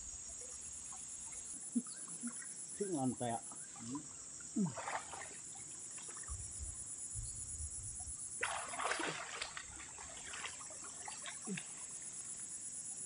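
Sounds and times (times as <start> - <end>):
water splashing from wading: 3.5 - 6.4, 8.4 - 12.0.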